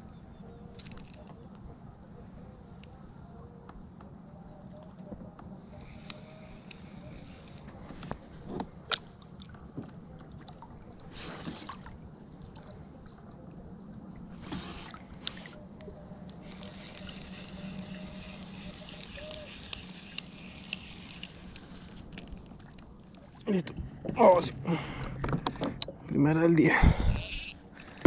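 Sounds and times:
water lapping at a hull: 1.4s - 25.8s.

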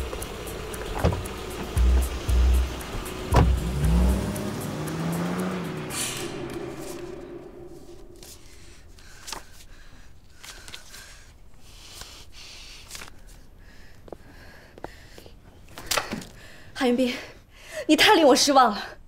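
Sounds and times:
car driving off: 0.0s - 8.5s.

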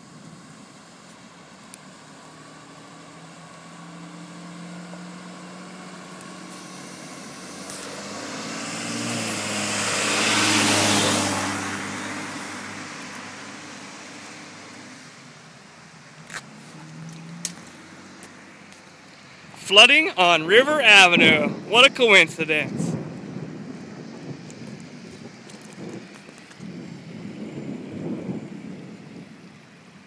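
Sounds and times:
van engine hum: 0.0s - 30.0s
tyres hissing through water: 5.9s - 19.5s.

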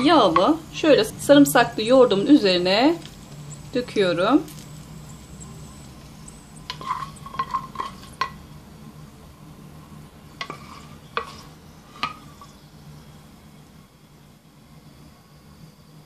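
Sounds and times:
wooden spoon scraping a pan: 0.0s - 0.6s, 5.8s - 8.4s, 10.3s - 12.6s.

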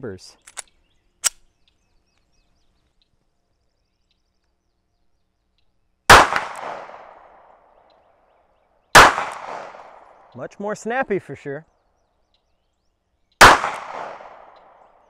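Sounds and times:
pistol shots: 6.1s - 7.5s, 9.0s - 10.3s, 13.4s - 14.9s.

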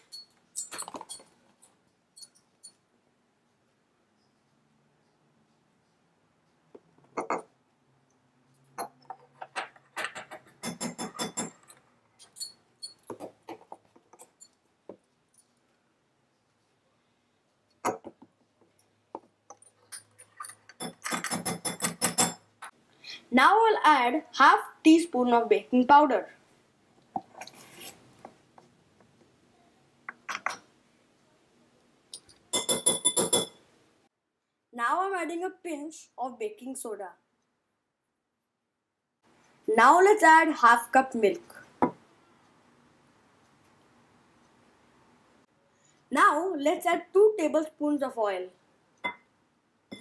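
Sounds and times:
spoon tapping on bowl: 32.2s - 33.6s.

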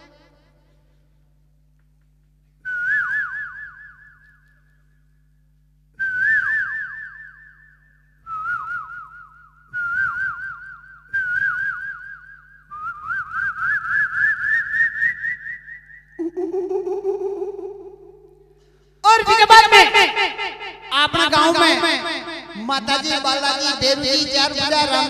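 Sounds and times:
man whistling bird call: 2.6s - 4.8s, 6.0s - 16.2s.

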